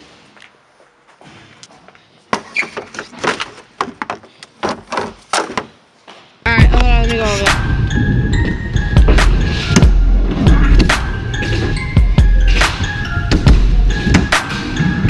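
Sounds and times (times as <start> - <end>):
loud music: 6.5 - 15.0.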